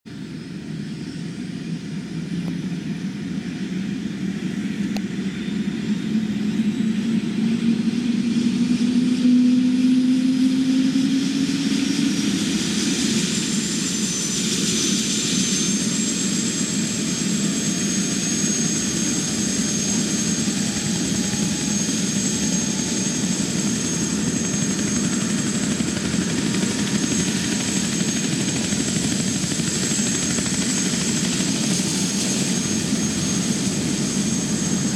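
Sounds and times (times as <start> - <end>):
high turbine whine: 4.0 - 34.9
helicopter spooling up: 7.5 - 34.9.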